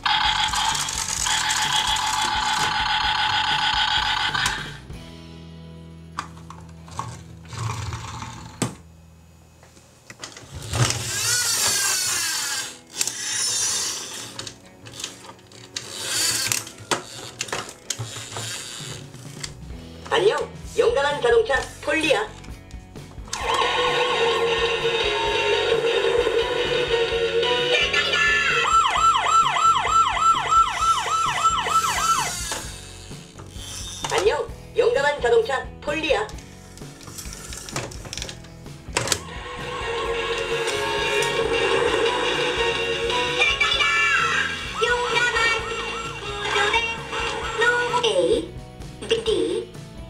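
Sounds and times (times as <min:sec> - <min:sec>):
toy siren warbling: 0:00.0 - 0:04.7, 0:23.4 - 0:32.8, 0:43.3 - 0:47.6
plastic toys clicking: 0:00.2 - 0:04.7, 0:10.8 - 0:19.6, 0:36.3 - 0:39.2.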